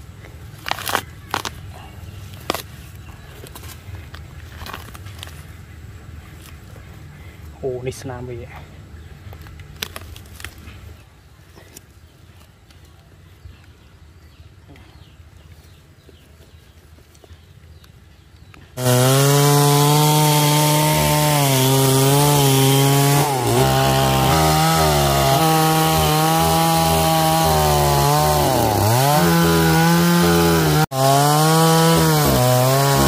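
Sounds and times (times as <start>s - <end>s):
chainsaw cutting wood: 18.8s - 33.0s.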